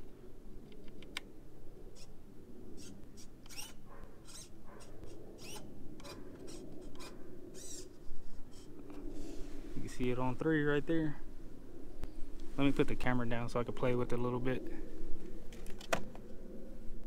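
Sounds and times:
servos whirring: 2.8 - 9.4.

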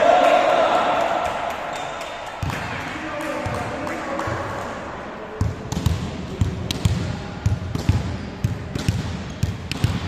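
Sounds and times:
volleyball bouncing on wooden floor: 2.4 - 2.8, 5.4 - 10.0.

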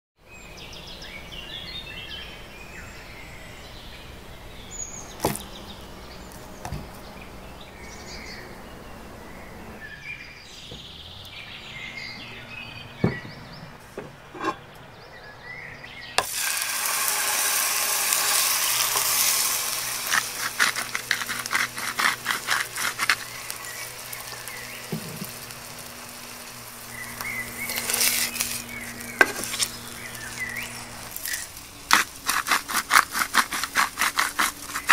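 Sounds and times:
faint outdoor chirping: 0.2 - 34.9
hot oil sizzling in a frying pan: 16.2 - 33.0
steak sizzling in a pan: 16.2 - 34.9.

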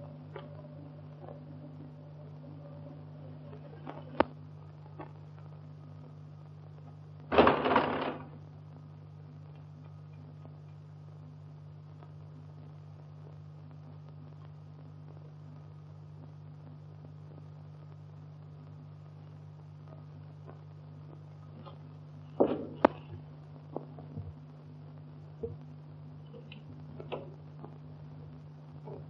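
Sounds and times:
old film soundtrack hum and hiss: 0.0 - 29.0
loud burst of noise: 7.3 - 8.4.

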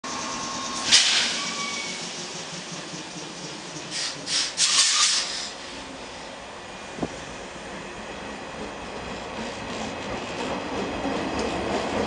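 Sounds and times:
idling train hiss: 0.1 - 10.1
compressed air hiss bursts: 0.8 - 1.5, 3.9 - 5.7.

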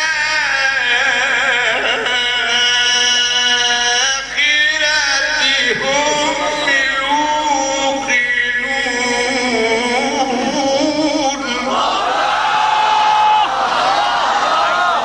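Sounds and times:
man chanting recitation: 0.0 - 12.0.

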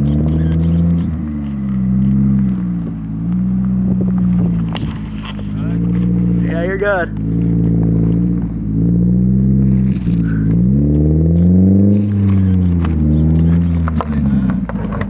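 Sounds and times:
car engine revving while reversing: 0.0 - 15.0.

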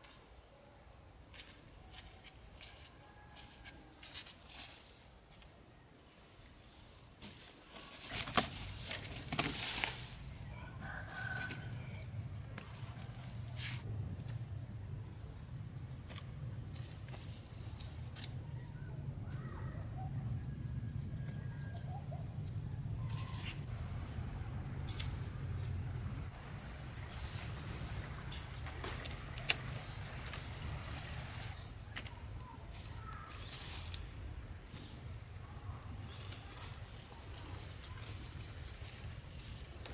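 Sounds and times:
high-pitched insect drone: 9.8 - 39.9.

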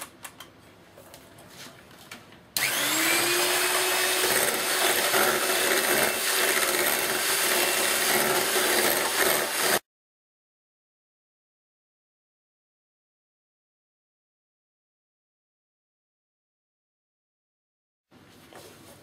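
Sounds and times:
electric hand mixer whirring: 2.6 - 9.8.

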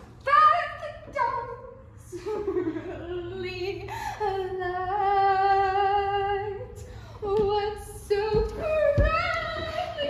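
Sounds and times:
girl singing unaccompanied: 4.4 - 10.0.

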